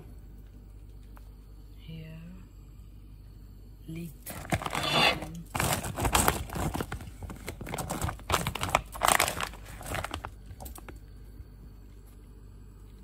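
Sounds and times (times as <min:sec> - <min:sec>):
faint low hum: 0:00.0 - 0:13.0
plastic bag crinkling: 0:04.2 - 0:11.0.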